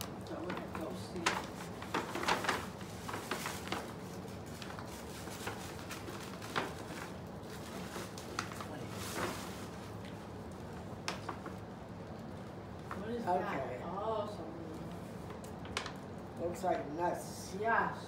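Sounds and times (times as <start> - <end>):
paper bag rustling and crinkling: 0.0 - 13.0.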